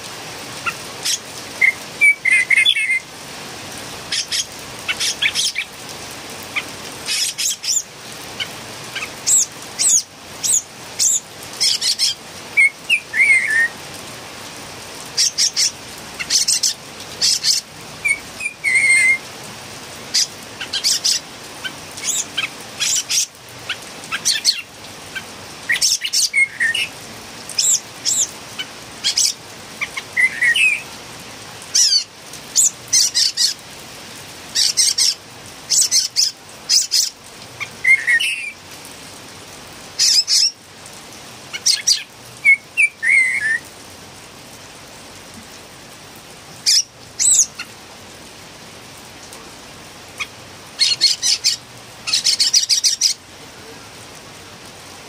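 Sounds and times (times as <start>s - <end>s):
bird calling: 0.6s - 3.1s, 4.1s - 5.8s, 6.5s - 13.8s, 15.1s - 19.3s, 20.1s - 27.0s, 27.6s - 30.9s, 34.6s - 38.6s, 41.5s - 43.7s, 46.6s - 47.7s, 50.2s - 53.2s.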